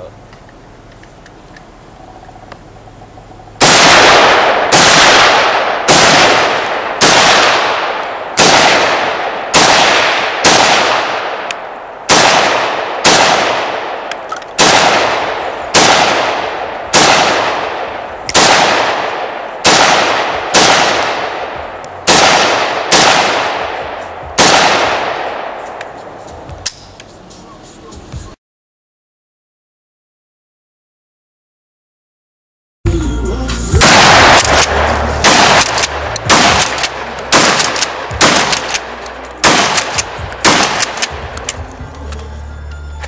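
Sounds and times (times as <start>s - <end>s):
rifle shots echoing: 3.6s - 26.0s, 33.8s - 41.6s.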